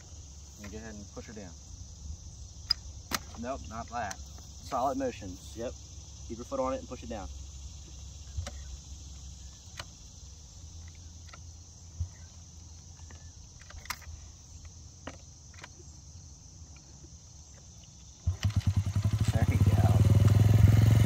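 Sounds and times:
crickets trilling: 0:00.0 - 0:21.0
dirt bike engine starting: 0:18.2 - 0:21.0.

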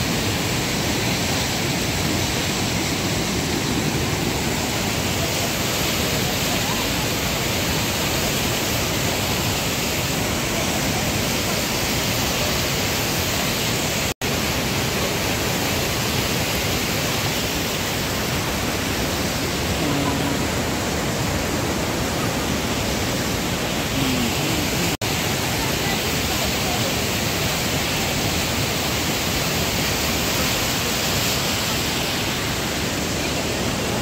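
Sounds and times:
river rushing over rocks: 0:00.0 - 0:34.0.

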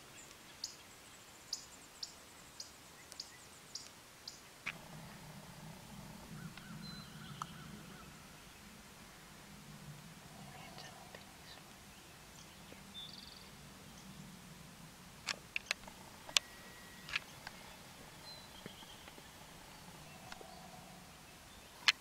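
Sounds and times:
sharp clicks: 0:15.2 - 0:20.5.

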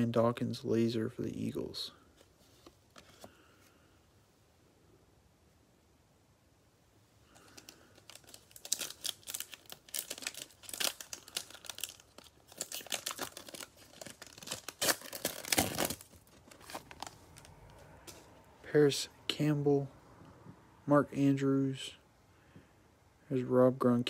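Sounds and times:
foil crackling tears: 0:07.4 - 0:17.2
foil wrapper tearing and crinkling: 0:07.4 - 0:17.5.

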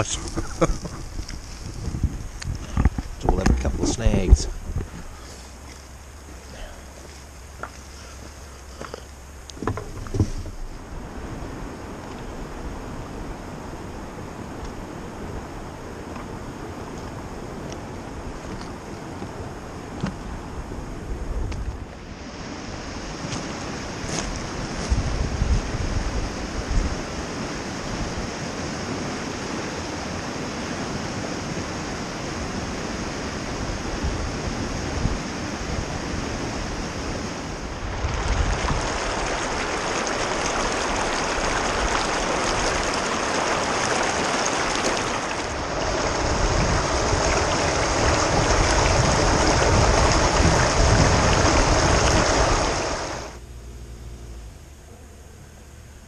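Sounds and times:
wind buffeting microphone: 0:00.0 - 0:06.5, 0:09.6 - 0:53.4
river rapids rushing over rocks: 0:38.0 - 0:53.4.

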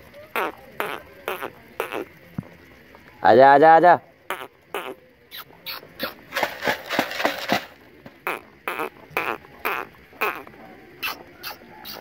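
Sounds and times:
duck quacking softly: 0:00.3 - 0:02.1, 0:08.2 - 0:12.0.

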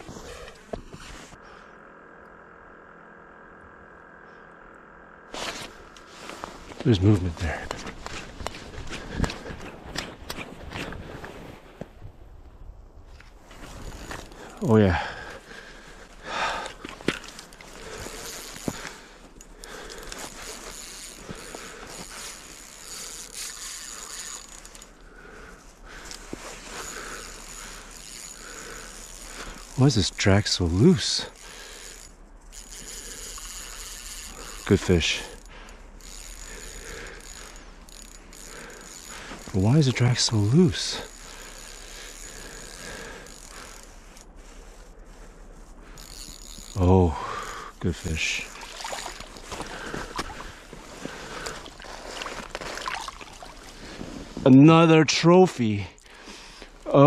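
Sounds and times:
fishing reel drag ratcheting: 0:13.6 - 0:54.6, 0:55.6 - 0:57.0.

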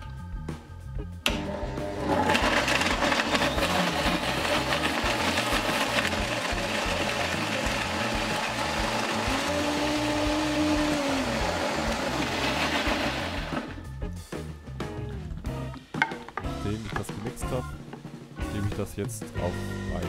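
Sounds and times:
background music with a beat: 0:00.0 - 0:02.0, 0:12.4 - 0:20.0
blender running: 0:01.3 - 0:13.8.

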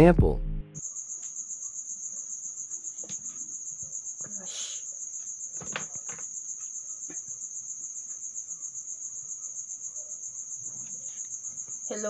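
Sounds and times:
crickets chirping: 0:00.8 - 0:12.0
faint knocks and rustles: 0:02.9 - 0:04.0, 0:05.2 - 0:07.4.

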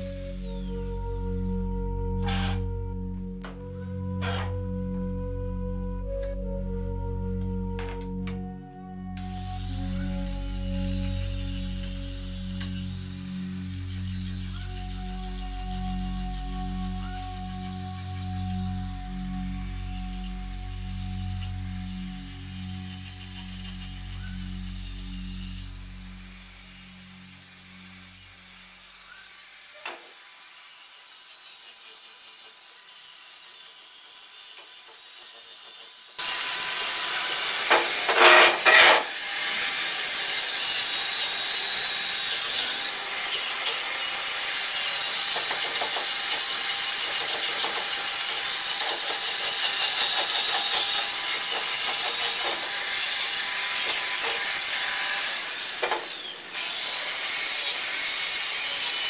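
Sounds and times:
power tool sanding wood: 0:00.0 - 0:59.0.

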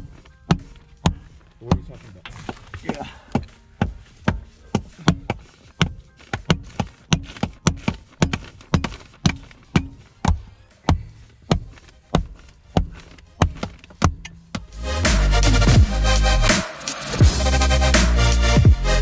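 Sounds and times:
music with percussive beat: 0:14.1 - 0:19.0.

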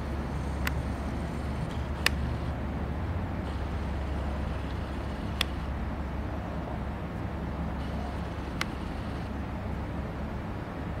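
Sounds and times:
sharp click: 0:01.6 - 0:02.4, 0:04.6 - 0:05.7, 0:07.8 - 0:09.3.

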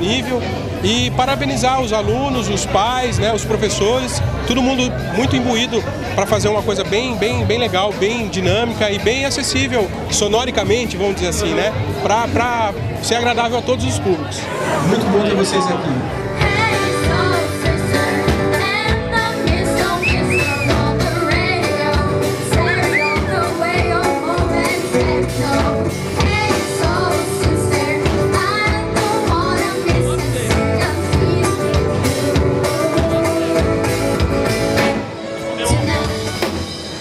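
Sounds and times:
acoustic bass guitar: 0:00.0 - 0:15.2, 0:16.0 - 0:37.0
strummed acoustic guitars: 0:16.1 - 0:36.9
girls singing: 0:16.3 - 0:33.9
drum kit beat: 0:16.4 - 0:35.0.

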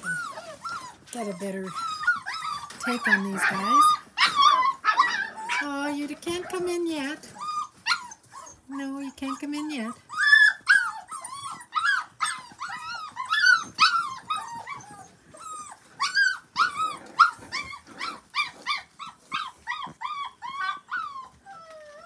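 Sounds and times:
puppies whining and yipping: 0:00.0 - 0:22.0.

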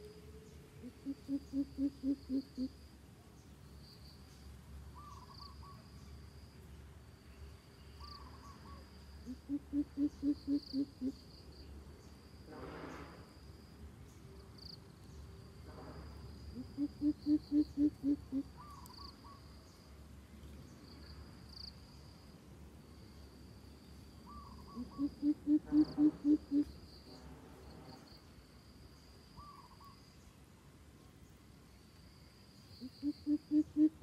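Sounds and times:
bird deep hooting calls: 0:00.8 - 0:02.8, 0:05.0 - 0:05.8, 0:08.0 - 0:11.2, 0:16.5 - 0:19.4, 0:24.3 - 0:26.7, 0:32.8 - 0:34.0.

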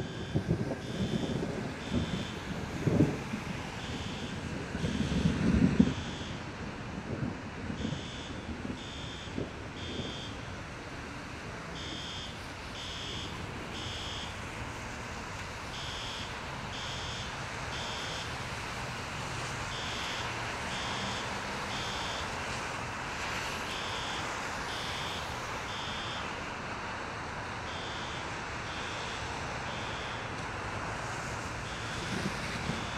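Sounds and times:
fire alarm beeping: 0:00.0 - 0:02.4, 0:03.8 - 0:06.4, 0:07.8 - 0:10.4, 0:11.8 - 0:14.3, 0:15.8 - 0:18.3, 0:19.7 - 0:22.3, 0:23.7 - 0:26.3, 0:27.7 - 0:30.3, 0:31.7 - 0:32.9
traffic: 0:00.0 - 0:32.9
wind: 0:00.0 - 0:32.9.

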